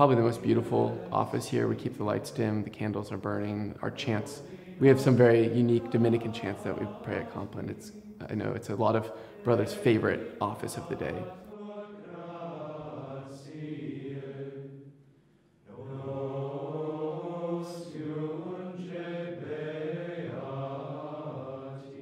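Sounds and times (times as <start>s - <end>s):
men chanting in unison: 0.0s - 2.4s, 3.9s - 14.8s.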